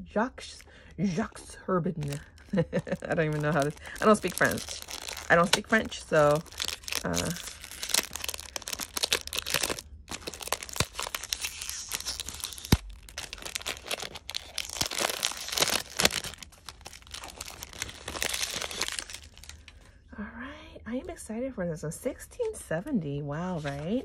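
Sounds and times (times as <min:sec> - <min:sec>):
plastic wrap tearing and crinkling: 0:02.0 - 0:19.8.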